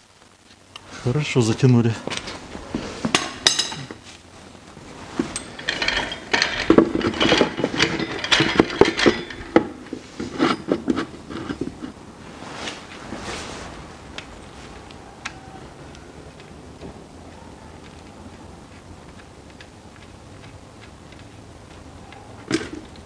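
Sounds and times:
metal tools clinking: 0:03.0 - 0:04.1, 0:04.8 - 0:12.0.

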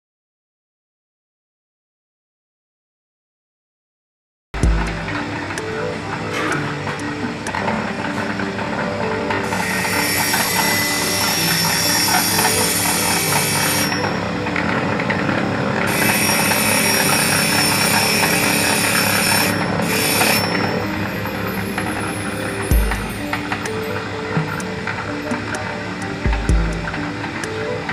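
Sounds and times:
grinding wheel hissing on stone: 0:09.5 - 0:14.1, 0:15.9 - 0:20.7.

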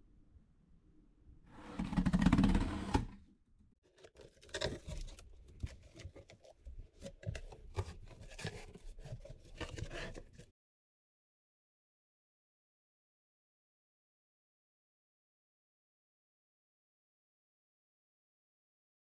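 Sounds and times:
cardboard flaps rustling and scraping: 0:04.1 - 0:10.5.

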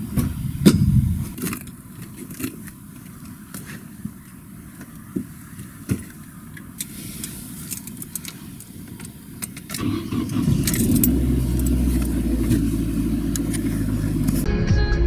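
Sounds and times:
car engine starting and idling: 0:06.3 - 0:14.5.

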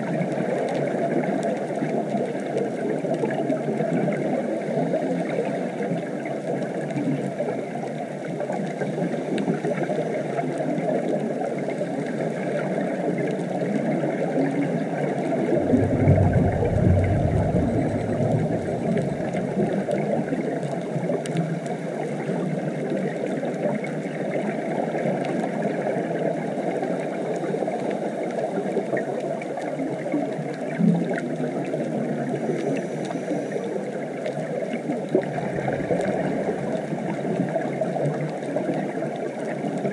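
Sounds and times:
muffled underwater water noise: 0:00.0 - 0:39.9
low rumble: 0:15.4 - 0:20.2, 0:35.2 - 0:37.1.

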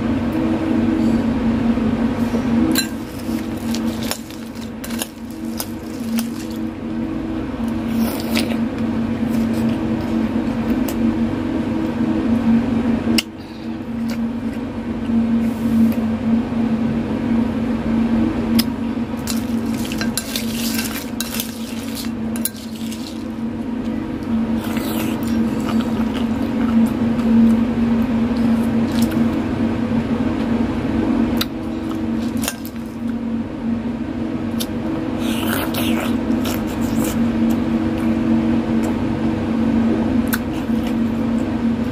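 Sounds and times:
steady low hum: 0:00.0 - 0:41.9
metal spoon scraping ice cubes: 0:19.4 - 0:23.3.

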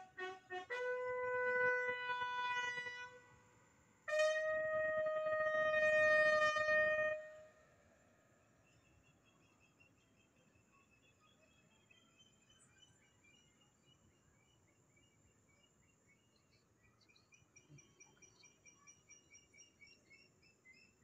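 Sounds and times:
bugle call: 0:00.0 - 0:03.3, 0:04.1 - 0:07.5.

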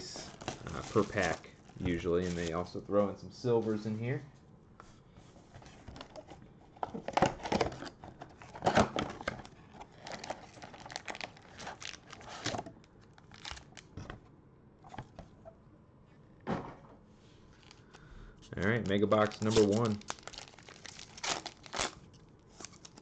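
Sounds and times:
foil packs crinkling: 0:00.0 - 0:02.7, 0:07.2 - 0:14.0, 0:17.5 - 0:23.0
cardboard tearing: 0:00.1 - 0:01.4, 0:18.8 - 0:23.0.

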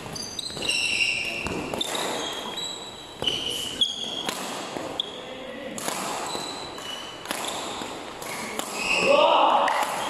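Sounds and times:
shoes squeaking on court floor: 0:00.0 - 0:10.0
racket hitting shuttlecock: 0:00.1 - 0:02.6, 0:03.2 - 0:05.1, 0:05.7 - 0:10.0.

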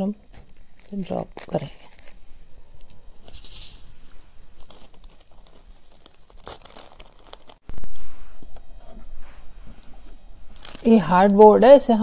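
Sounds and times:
paper rustling and crinkling: 0:00.3 - 0:08.1, 0:10.0 - 0:11.2.

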